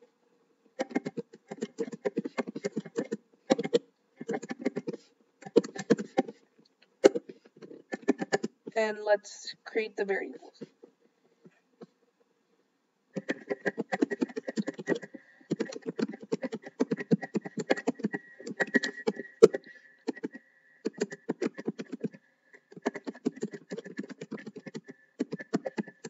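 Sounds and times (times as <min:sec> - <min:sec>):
fast typing on keyboard: 0:00.8 - 0:06.4, 0:07.1 - 0:08.6, 0:13.2 - 0:26.0.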